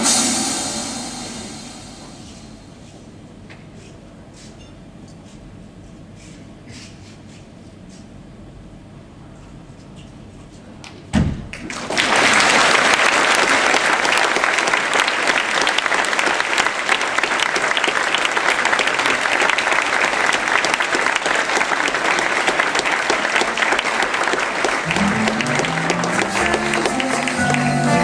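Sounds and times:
audience applauding: 0:11.6 - 0:28.0
music: 0:24.8 - 0:28.0.

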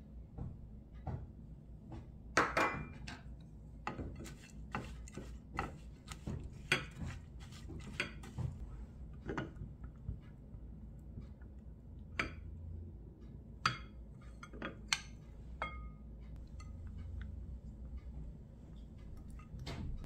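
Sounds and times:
spatula scraping a ceramic bowl: 0:03.9 - 0:08.4.

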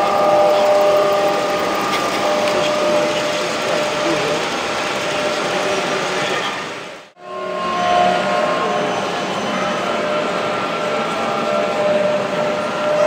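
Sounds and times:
wagon wheels running on rails: 0:00.0 - 0:07.0
background chatter: 0:00.0 - 0:13.0
model locomotive motor whine: 0:00.0 - 0:13.0.

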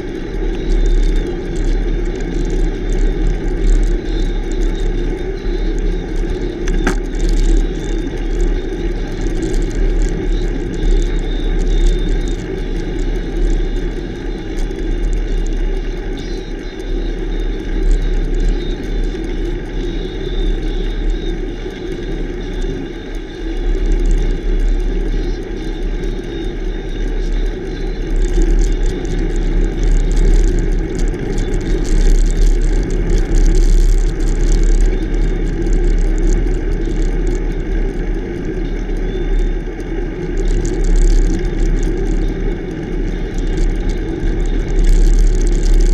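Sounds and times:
tyres humming on road: 0:00.0 - 0:45.9.

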